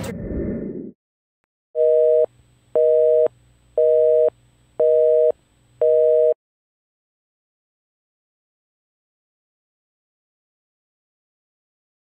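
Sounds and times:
telephone busy signal beeps: 1.8s - 6.4s.

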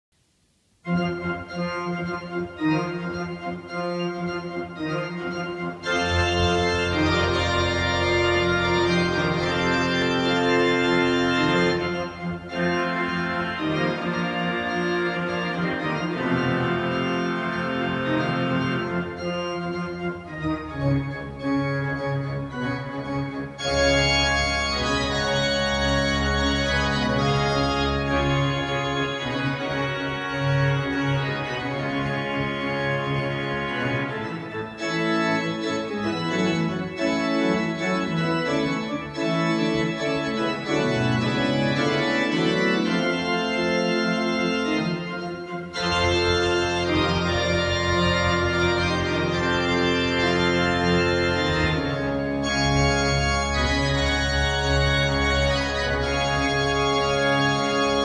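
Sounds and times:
pipe organ playing: 0.8s - 58.0s.

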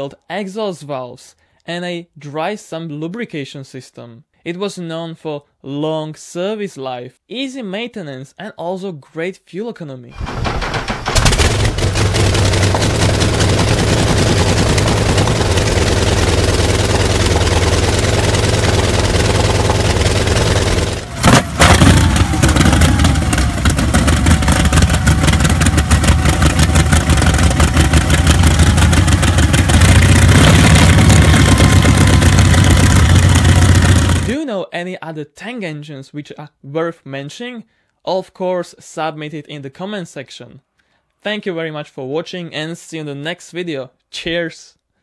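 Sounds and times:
aircraft piston engines running: 10.7s - 34.3s.

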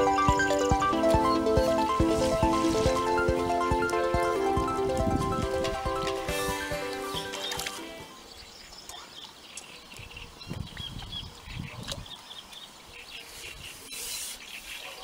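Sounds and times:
background music: 0.0s - 8.4s
small birds chirping: 6.6s - 15.0s.

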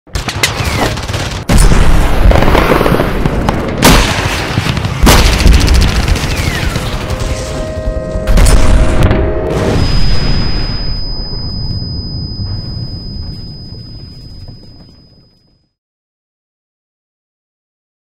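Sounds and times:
gunfire: 0.1s - 7.6s.

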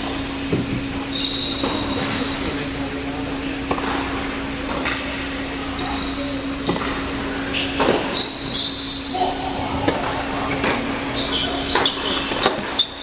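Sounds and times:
low hum: 9.1s - 11.8s.

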